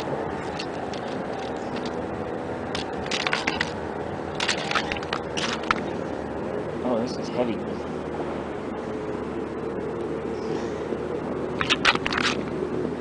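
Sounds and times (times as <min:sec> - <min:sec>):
steady background noise: 0:00.0 - 0:13.0
clicks and scrapes on ice: 0:02.8 - 0:03.8, 0:04.4 - 0:05.8, 0:11.6 - 0:12.5.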